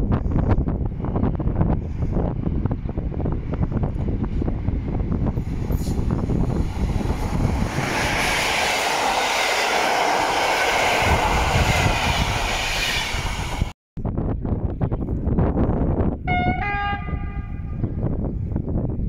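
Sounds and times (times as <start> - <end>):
passenger train passing at speed: 0.0 - 13.8
wind noise on microphone: 0.0 - 19.0.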